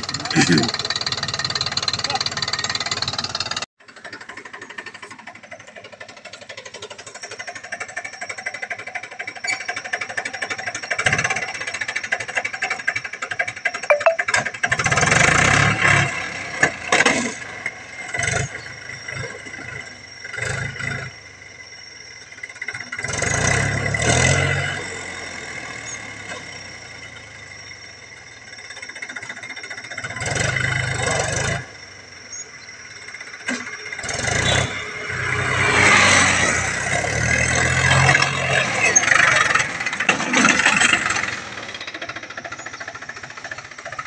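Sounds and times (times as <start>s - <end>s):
tractor diesel engine revving: 0.0s - 3.7s, 22.5s - 32.2s, 33.1s - 44.0s.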